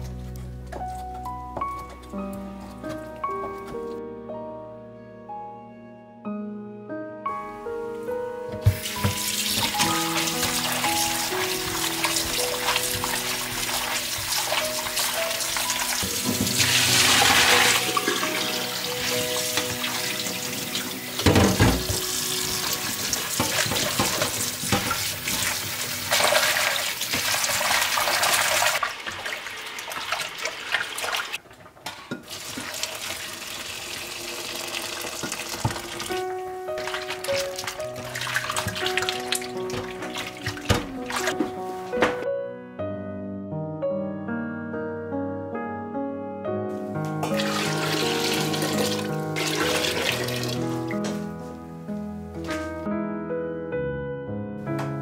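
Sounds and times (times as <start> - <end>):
hands rubbing and rinsing: 8.6 - 21.0
tap water splashing into bowl: 34.8 - 36.2
water sloshing in bowl: 36.8 - 41.5.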